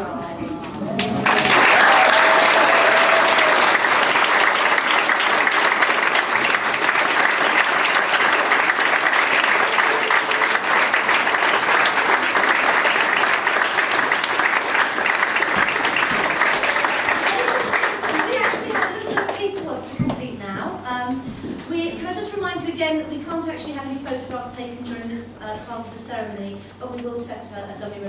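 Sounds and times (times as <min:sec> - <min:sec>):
crowd applauding: 0:01.0 - 0:19.4.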